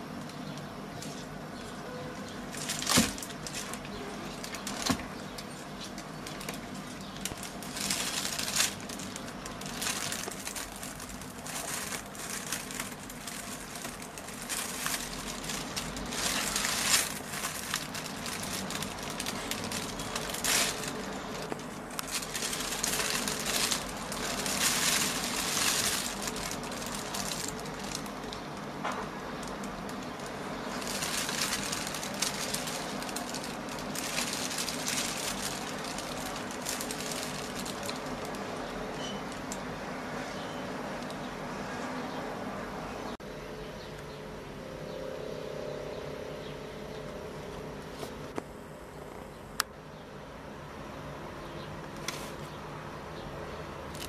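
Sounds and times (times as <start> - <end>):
plastic bag crinkling: 0.0 - 41.3.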